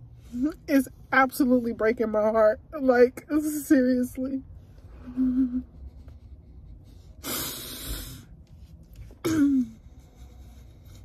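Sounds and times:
noisy breath: 4.6 - 8.8, 9.7 - 11.0
woman sobbing: 5.0 - 5.9, 9.2 - 10.1.

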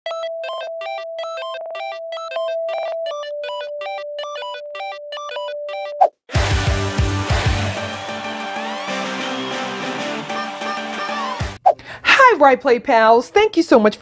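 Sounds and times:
repeating high electronic notes: 0.1 - 11.6
loud electronic hit: 6.4 - 8.8.

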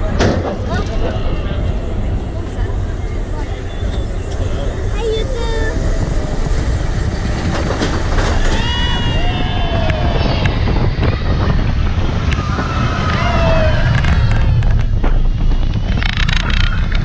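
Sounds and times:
roller coaster train rumbling: 0.0 - 17.0
wind buffeting microphone: 0.0 - 17.0
riders crying out: 8.3 - 10.7, 12.2 - 14.6.

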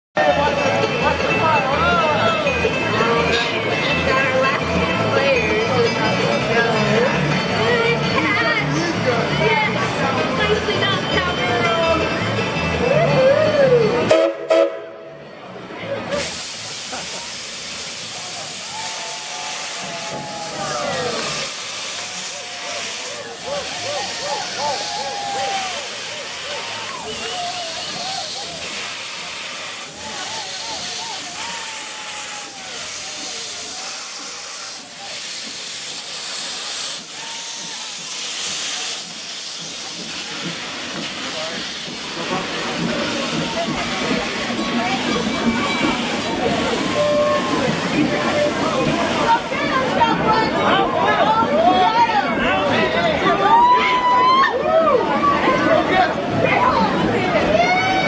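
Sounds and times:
steam whistle toots: 14.0 - 15.2, 16.2 - 39.7, 45.4 - 48.6
steam hissing: 16.0 - 54.4.

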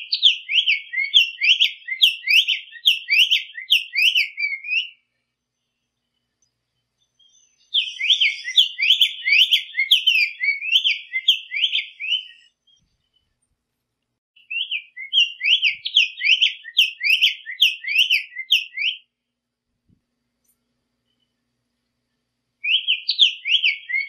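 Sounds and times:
bird singing whistled notes: 0.0 - 5.2, 6.1 - 13.4, 14.4 - 19.1, 22.6 - 24.0.

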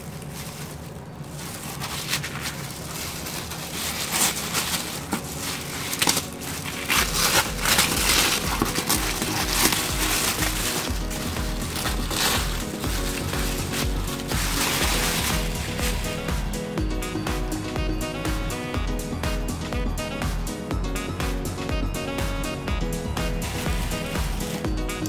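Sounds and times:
paper crinkling and tearing: 0.0 - 16.8, 22.9 - 25.0
background music with bass beat: 5.5 - 25.0.

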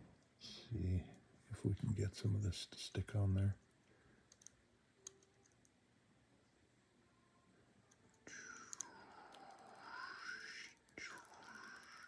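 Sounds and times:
soft hissing: 7.3 - 12.0.

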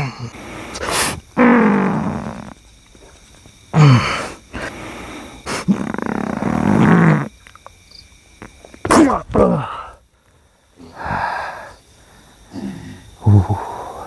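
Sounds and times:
man grunting and groaning: 0.0 - 0.4, 8.9 - 10.0.

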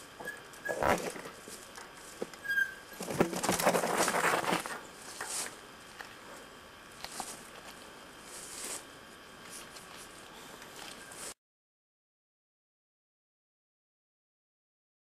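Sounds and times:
bike tyres crunching on dirt: 0.0 - 11.4.

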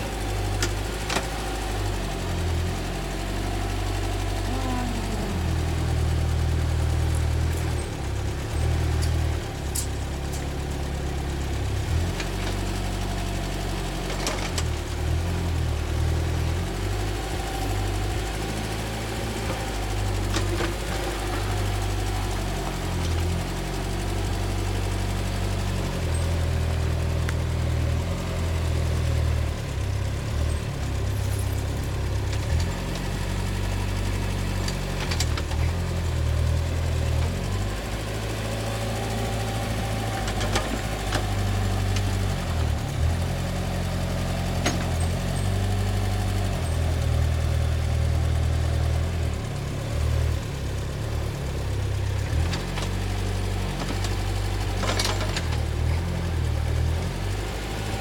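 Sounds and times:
tractor engine running: 0.0 - 58.0.

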